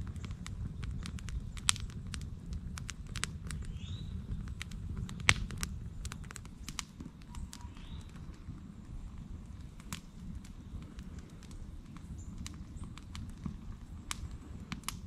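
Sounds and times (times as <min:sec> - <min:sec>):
campfire crackling and popping: 0:00.0 - 0:15.0
loud wood snaps: 0:01.0 - 0:03.8, 0:04.6 - 0:08.4, 0:14.1 - 0:15.0.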